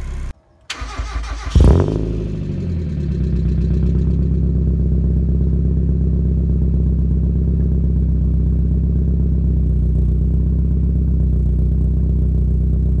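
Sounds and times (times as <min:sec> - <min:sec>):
car engine idling: 0:00.0 - 0:13.0.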